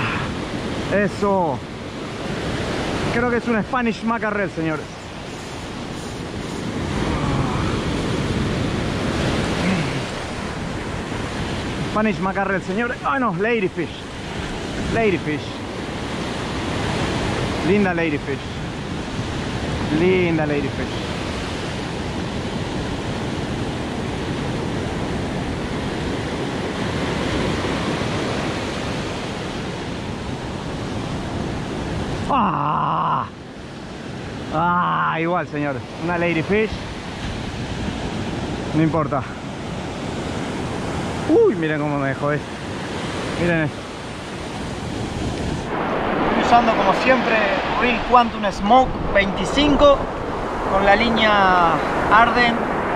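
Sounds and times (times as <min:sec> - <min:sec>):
wind on microphone: 0:00.0 - 0:17.8, 0:35.8 - 0:52.9
ocean surf breaking: 0:00.0 - 0:52.9.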